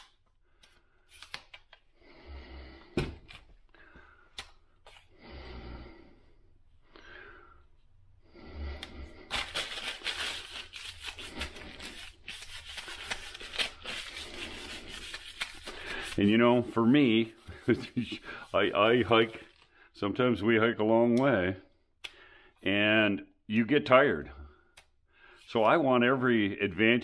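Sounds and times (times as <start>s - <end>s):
wax paper rubbing on pole: 9.3s - 19.6s.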